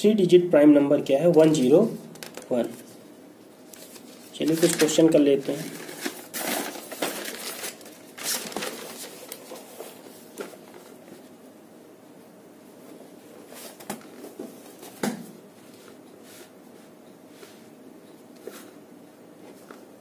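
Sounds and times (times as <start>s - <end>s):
paper rustling: 3.7s - 11.2s.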